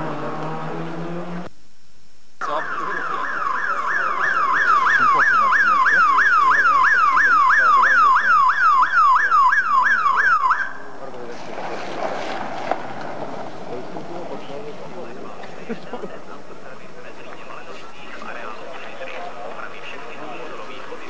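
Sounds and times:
electronic siren wailing: 2.4 - 11.0.

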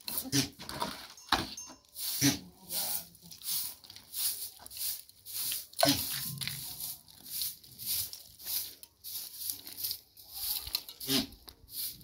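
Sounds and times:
hand broom sweeping stone floor: 0.0 - 12.0.

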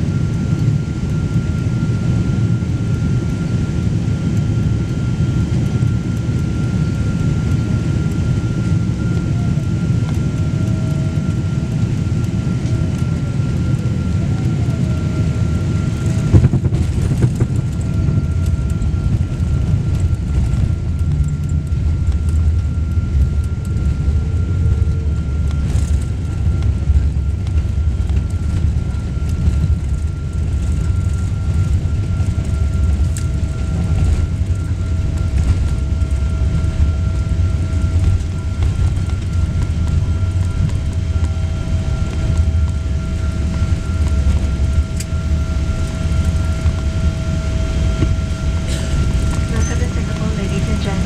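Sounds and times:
low rumble of aircraft cabin: 0.0 - 51.0.

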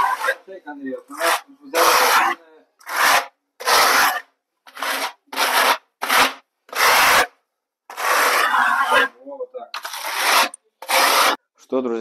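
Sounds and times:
spatula scraping wet mortar: 1.1 - 11.4.

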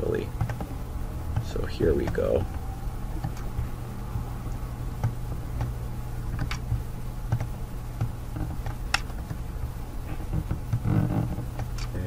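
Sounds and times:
steady low hum: 0.0 - 12.0
computer mouse clicking: 0.4 - 0.7, 3.2 - 3.6, 5.0 - 9.4, 10.3 - 12.0.

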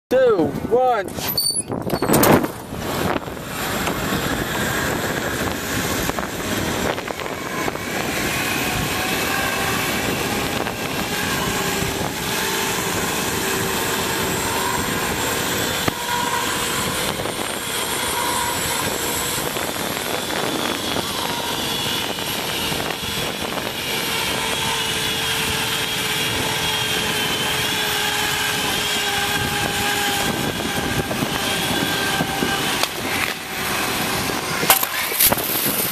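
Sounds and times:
zip line pulleys whining: 1.1 - 35.9
wind rushing: 1.7 - 26.4.

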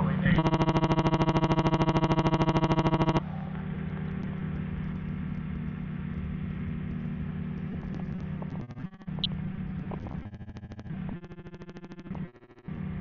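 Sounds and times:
aircraft engine droning: 0.0 - 10.0.

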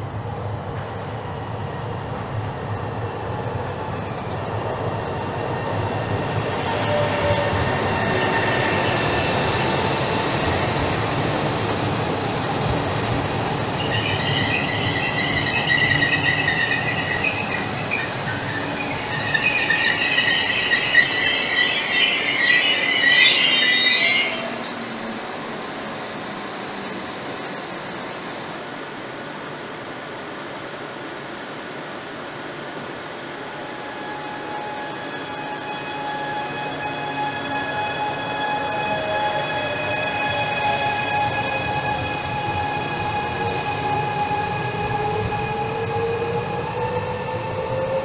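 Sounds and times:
standing train humming: 0.0 - 48.0
brake and wheel squeal: 13.9 - 24.8, 32.9 - 40.0.

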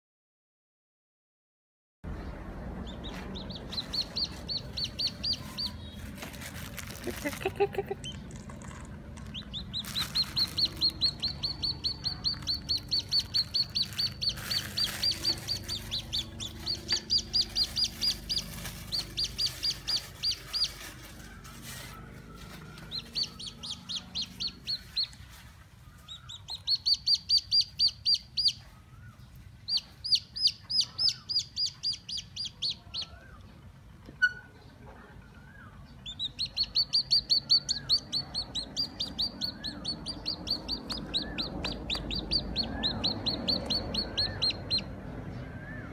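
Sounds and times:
chick peeping: 2.1 - 45.9.

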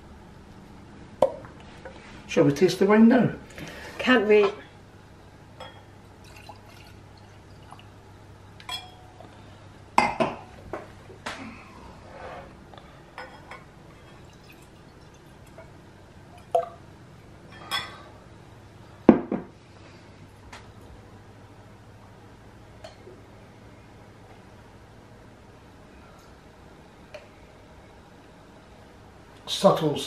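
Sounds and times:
wine pouring into a glass: 6.2 - 7.9, 14.0 - 15.6.

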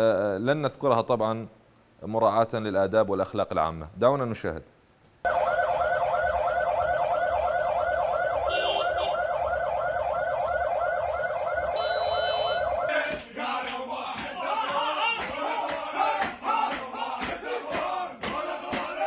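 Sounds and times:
siren warbling: 5.3 - 12.9
men chanting and shouting: 12.9 - 19.0.

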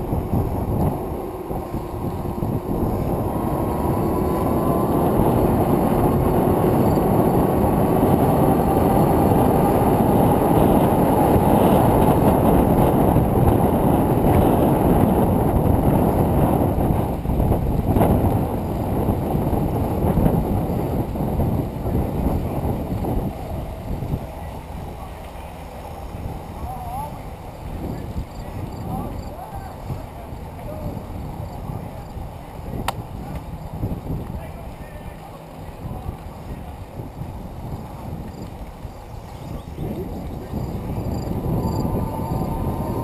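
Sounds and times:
faint rising whine: 0.0 - 11.8, 40.8 - 43.0
bicycle tyres rolling on pavement: 0.0 - 43.0
wind rush on microphone: 0.0 - 43.0.

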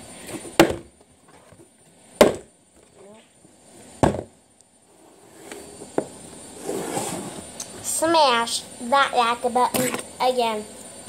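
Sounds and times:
bottle thudding on table: 4.0 - 4.3.

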